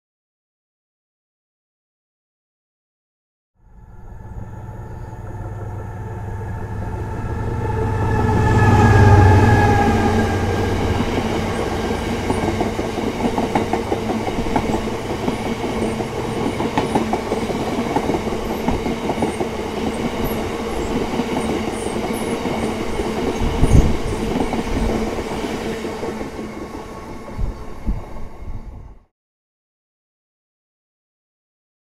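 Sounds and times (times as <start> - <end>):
diesel locomotive engine passing: 3.6 - 29.1
wheels clacking over rail joints: 10.6 - 25.4.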